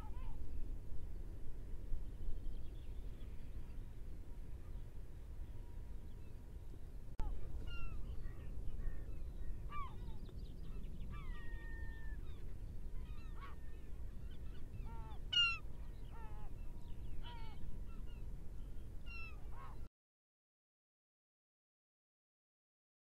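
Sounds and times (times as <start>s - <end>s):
flock of birds honking calls: 13.0s - 16.6s.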